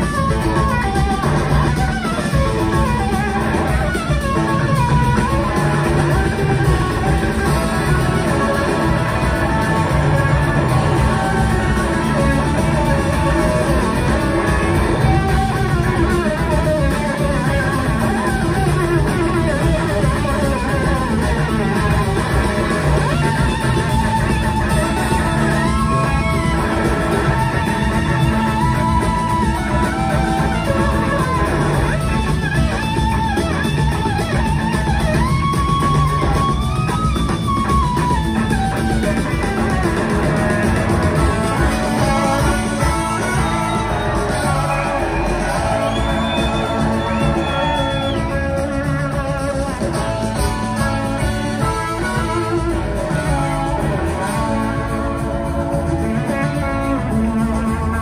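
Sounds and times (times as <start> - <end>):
bass guitar: 0.0 - 58.0
drum kits: 0.0 - 58.0
electric guitar lead lines: 0.0 - 58.0.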